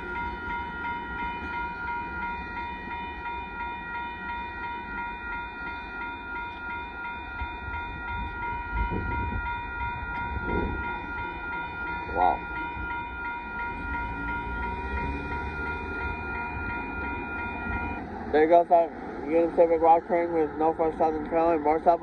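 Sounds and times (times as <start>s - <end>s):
freight train rumbling: 0.0s - 22.0s
railroad crossing bell ringing: 0.0s - 22.0s.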